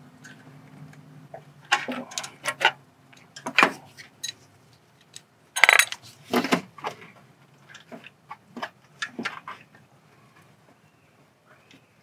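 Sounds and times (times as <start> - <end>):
loud metallic clatter: 5.6 - 5.9
metal tools clinking on engine parts: 5.6 - 6.0.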